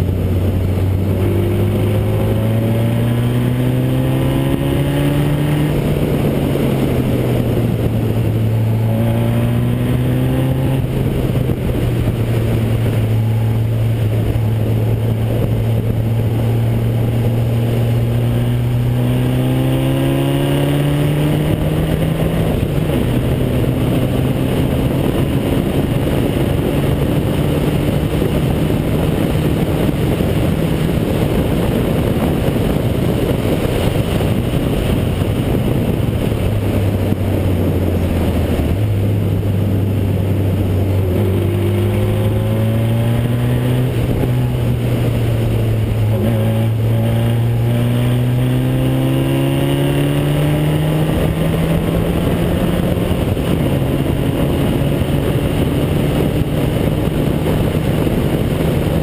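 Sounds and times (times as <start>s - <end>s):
racing car engine: 0.0s - 59.0s
wind and tyre noise: 0.0s - 59.0s.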